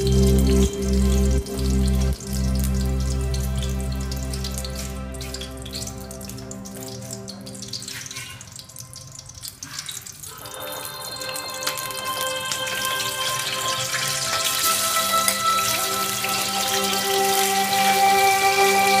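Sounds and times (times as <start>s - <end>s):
background music: 0.0s - 9.4s, 10.3s - 19.0s
chicken frying in oil: 0.0s - 19.0s
hot oil sizzling in a wok: 0.0s - 19.0s.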